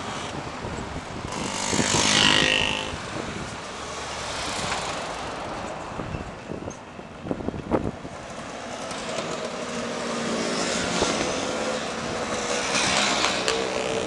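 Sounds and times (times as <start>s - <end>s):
motor scooter engines buzzing: 0.0s - 5.2s, 8.8s - 14.0s.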